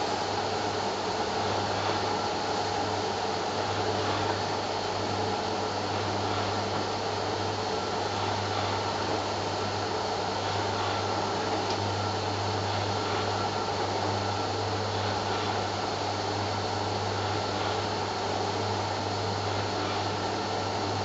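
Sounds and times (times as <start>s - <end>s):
electric blind motor humming: 0.0s - 21.0s.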